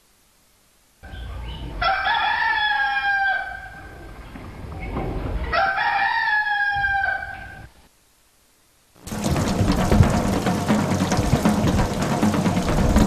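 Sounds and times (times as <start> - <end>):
rooster crowing: 1.1 - 4.2, 5.4 - 7.8
low rumble: 9.1 - 13.0.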